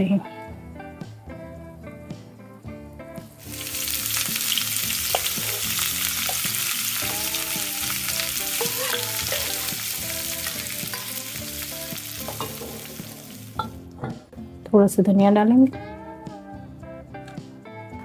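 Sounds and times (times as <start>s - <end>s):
hot oil sizzling loudly: 3.4s - 13.8s.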